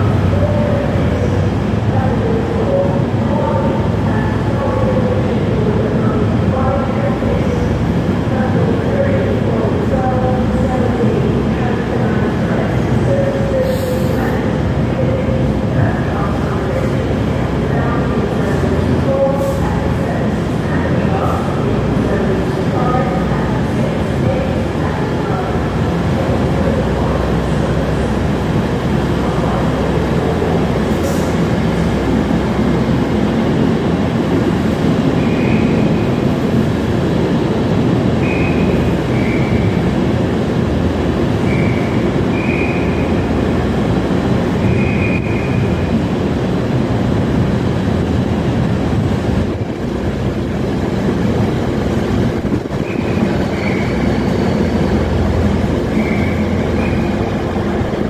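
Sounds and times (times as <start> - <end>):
freight train wheels rumbling: 0.0 - 58.0
high wheel squeals: 52.8 - 54.5.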